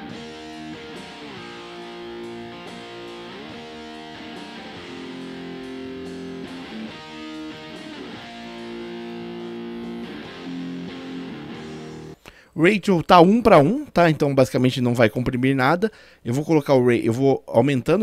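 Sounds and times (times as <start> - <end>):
electric guitar chords: 0.0 - 12.2.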